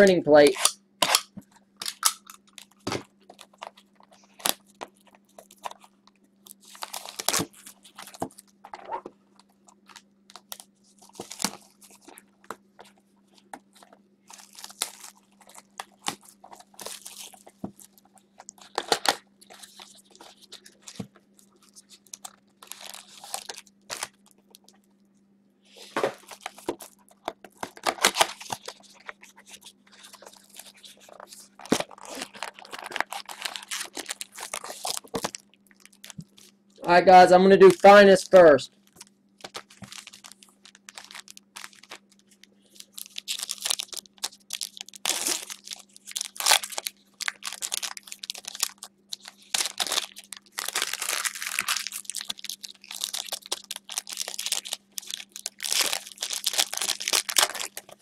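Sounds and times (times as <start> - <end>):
plastic wrap crinkling: 0.0 - 24.9, 25.7 - 58.0
cardboard tearing: 27.6 - 29.1, 29.9 - 35.4, 43.0 - 58.0.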